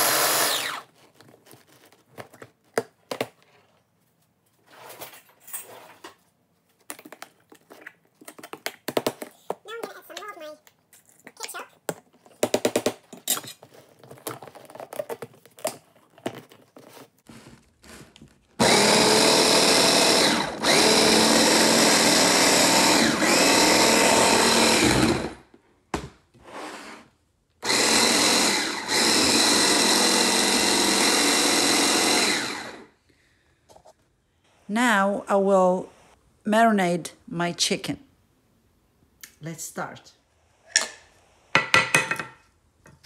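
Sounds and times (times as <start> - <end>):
hand blender motor running: 0.0 - 0.8, 18.6 - 25.4, 27.6 - 32.9.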